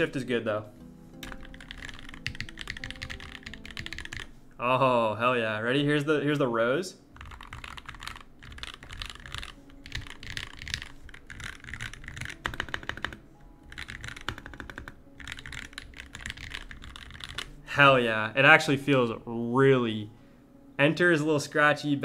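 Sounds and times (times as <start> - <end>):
mechanical keyboard typing: 1.2 - 4.3, 7.2 - 17.5.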